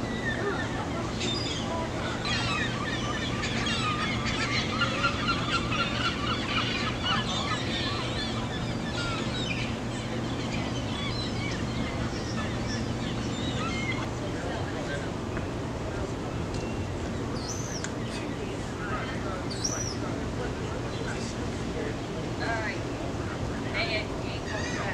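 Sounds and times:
gulls squawking: 0:00.0 - 0:24.9.

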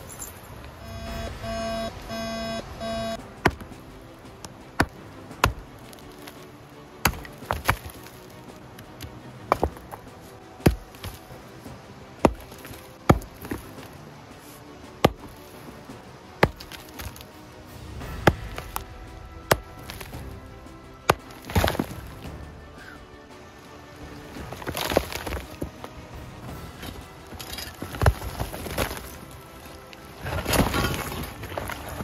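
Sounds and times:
short electronic beeps: 0:00.8 - 0:03.2
pick striking rock: 0:03.3 - 0:03.8, 0:04.4 - 0:11.4, 0:12.2 - 0:14.0, 0:15.0 - 0:15.6, 0:16.4 - 0:17.3, 0:18.0 - 0:22.4, 0:24.3 - 0:32.0.

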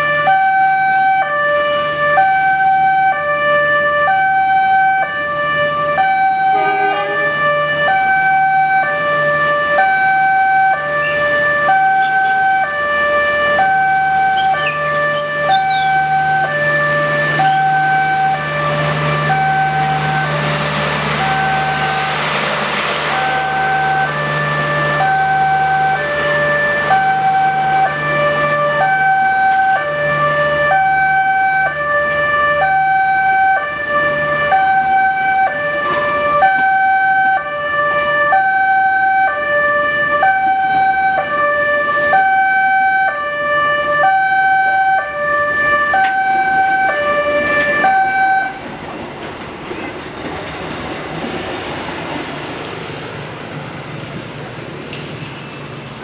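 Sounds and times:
level crossing two-tone alarm: 0:09.8 - 0:12.8, 0:13.6 - 0:16.6, 0:17.3 - 0:20.4, 0:21.2 - 0:22.1, 0:23.1 - 0:26.0, 0:45.8 - 0:48.6
train carriages rumbling: 0:48.4 - 0:56.0.

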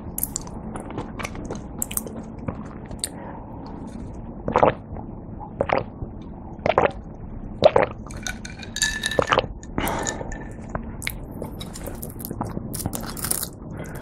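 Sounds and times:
gulping drink: 0:04.5 - 0:04.8, 0:05.4 - 0:05.9, 0:06.6 - 0:07.0, 0:07.6 - 0:08.0.

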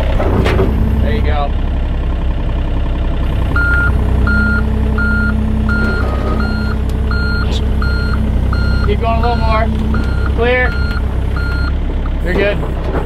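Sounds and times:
diesel engine running: 0:00.0 - 0:13.0
excavator travel alarm beeping: 0:03.5 - 0:11.8.

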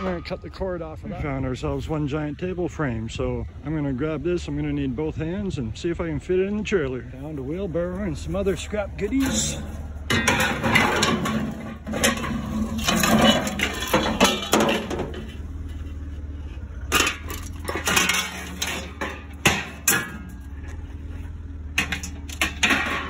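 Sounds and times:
scrap metal clattering: 0:07.8 - 0:23.0
sharp metal bangs: 0:09.0 - 0:15.3, 0:16.9 - 0:20.6.

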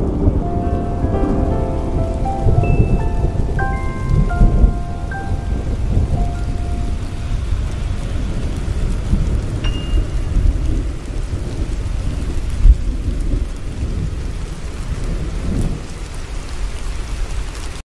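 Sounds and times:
low thunder boom: 0:00.0 - 0:14.2
thunder rumble: 0:00.0 - 0:17.4
steady rain: 0:00.0 - 0:17.8.

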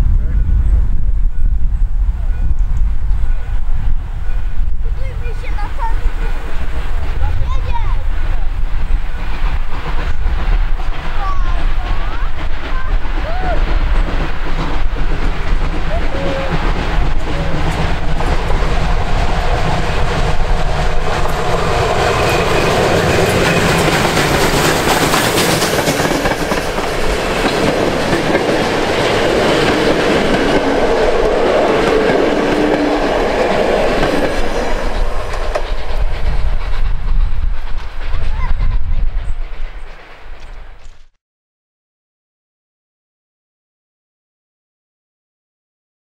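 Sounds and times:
steam train passing: 0:00.0 - 0:41.1
wheels clattering over rail joints: 0:09.2 - 0:37.0.

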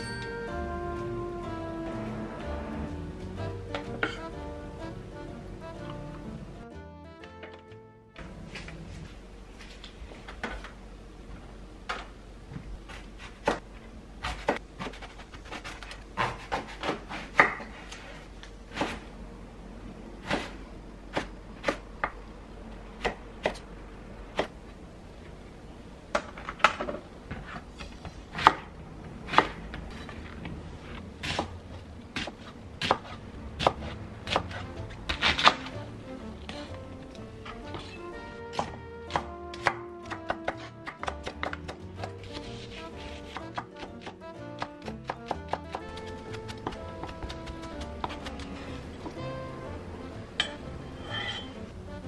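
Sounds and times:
knife chopping on wooden board: 0:14.2 - 0:17.7, 0:32.2 - 0:35.8, 0:38.5 - 0:49.2.

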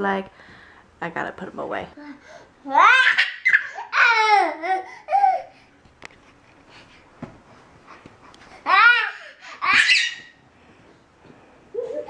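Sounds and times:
toddler laughing squeals: 0:02.8 - 0:05.5, 0:08.7 - 0:10.4.

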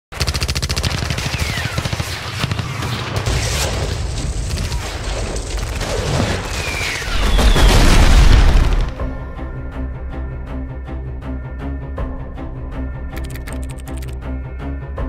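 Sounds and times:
machine-gun fire: 0:00.1 - 0:09.0
scattered gunshots: 0:00.1 - 0:09.0
heavy low explosion: 0:03.2 - 0:09.1
short falling whistles: 0:06.5 - 0:07.9.

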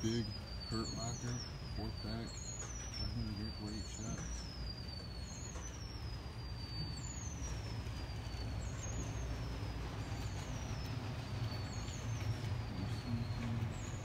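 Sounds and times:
faint high whistle sliding down: 0:00.0 - 0:13.6
store room tone rumble: 0:00.0 - 0:14.0.

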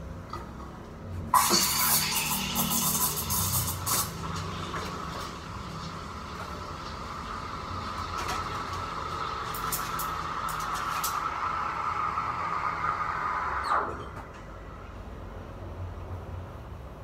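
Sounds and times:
steam wand hissing: 0:01.4 - 0:04.2.

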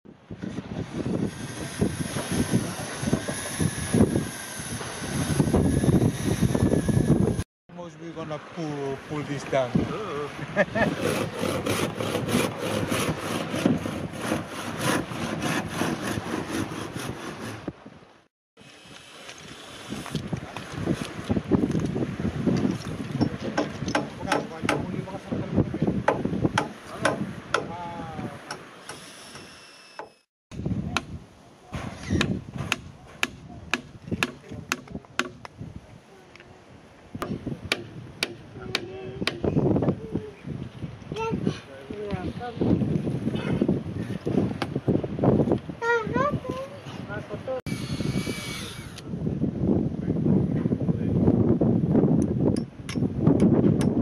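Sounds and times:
handsaw cutting timber: 0:01.2 - 0:07.4, 0:10.8 - 0:17.7, 0:28.8 - 0:30.3, 0:47.7 - 0:49.0
hammer blows on wooden stakes: 0:22.6 - 0:25.0, 0:26.0 - 0:30.2, 0:30.9 - 0:35.6, 0:37.2 - 0:39.7.

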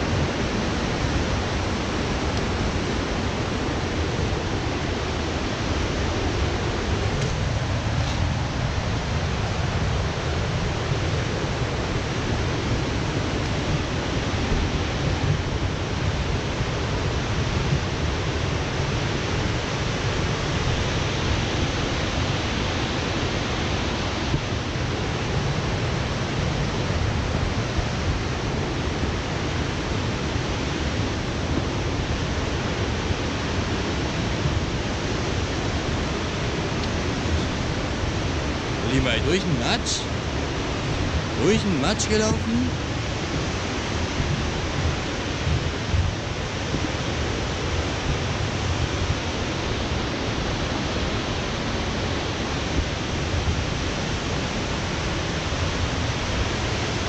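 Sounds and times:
waterfall roaring: 0:00.0 - 0:17.3, 0:34.7 - 0:43.9.

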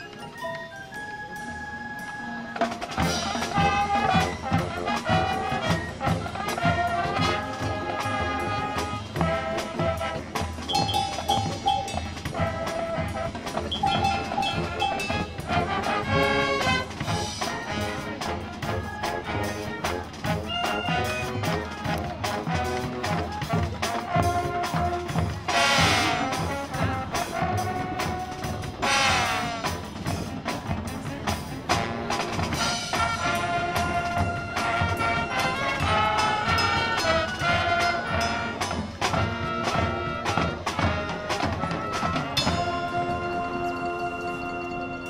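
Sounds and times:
marching band playing: 0:00.0 - 0:45.0.

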